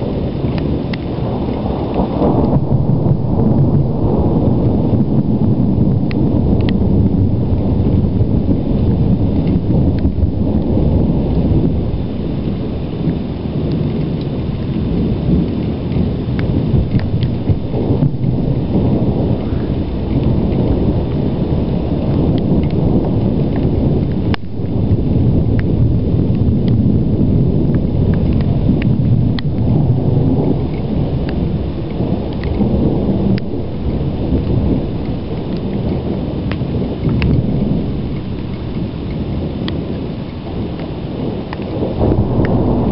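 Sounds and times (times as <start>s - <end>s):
rumbling thunder: 0.0s - 42.9s
light ticks: 0.5s - 2.6s, 6.1s - 6.8s, 13.0s - 17.4s, 22.3s - 22.8s, 23.5s - 24.6s, 25.5s - 25.7s, 27.7s - 29.7s, 30.4s - 32.7s, 34.4s - 37.4s, 38.1s - 41.8s.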